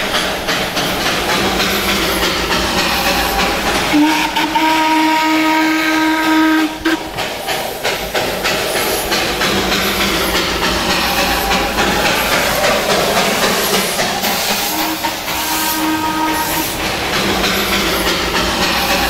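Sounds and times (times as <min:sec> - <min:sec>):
steam locomotive hissing: 0:00.0 - 0:19.0
steam whistle blast: 0:02.9 - 0:07.1, 0:11.0 - 0:16.8.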